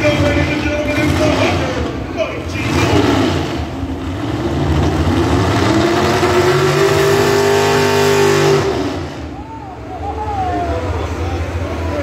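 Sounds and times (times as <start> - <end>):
engine revving up: 0.0 - 9.4.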